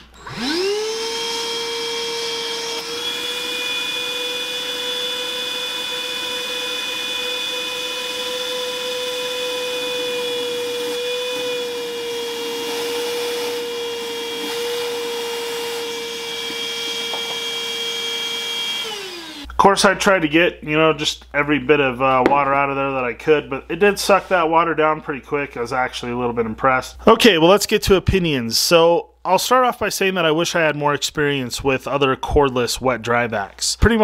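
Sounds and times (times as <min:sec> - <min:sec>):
wet dry vacuum whining: 0:00.0 - 0:19.6.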